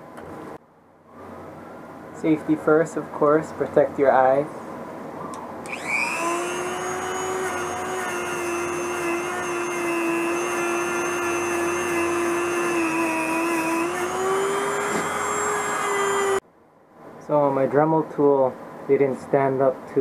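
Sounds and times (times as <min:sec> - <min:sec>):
rotary tool whining on metal: 0:05.6 - 0:16.4.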